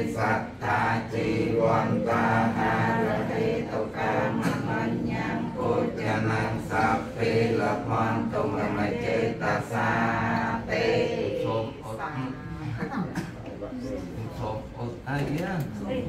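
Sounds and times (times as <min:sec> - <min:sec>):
monks chanting in unison: 0:00.0 - 0:12.0.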